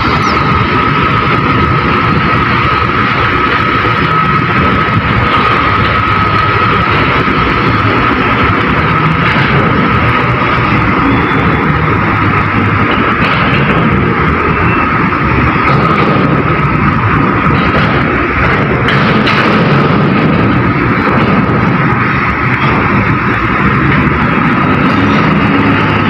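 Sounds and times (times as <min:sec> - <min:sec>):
diesel machinery engine rumble: 0:00.0 - 0:26.0
high-pitched whine: 0:00.0 - 0:26.0.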